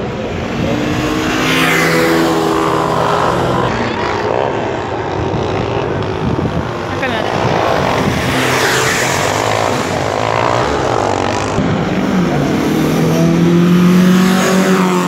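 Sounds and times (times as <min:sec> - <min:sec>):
car engines revving: 0:00.0 - 0:15.0.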